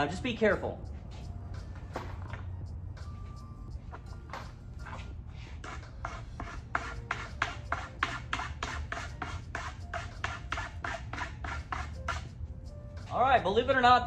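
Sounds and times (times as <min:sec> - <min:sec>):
scraper scraping wood: 0:04.8 - 0:12.3.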